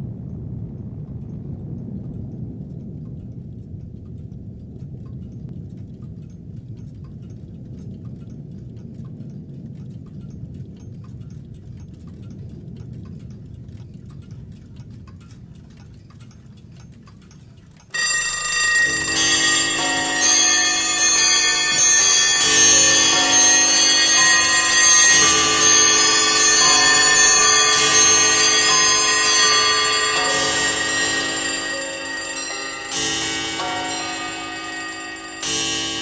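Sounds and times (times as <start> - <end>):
low steady rumble: 0.0 - 36.0
faint ticking: 0.2 - 36.0
loud ringing bell tones: 17.9 - 36.0.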